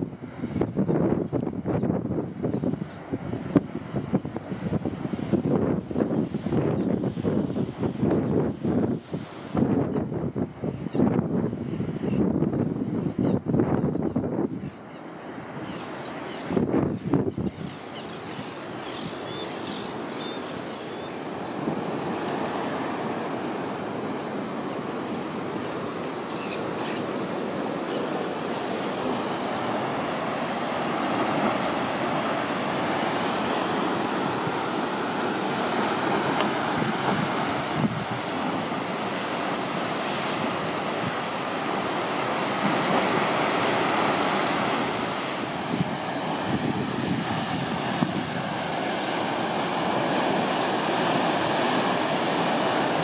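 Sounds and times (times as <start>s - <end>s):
heavy surf breaking on rocks: 16.5s - 53.0s.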